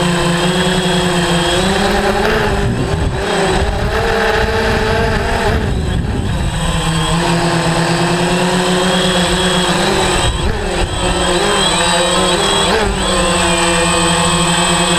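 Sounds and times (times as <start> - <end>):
drone propellers humming: 0.0 - 14.9.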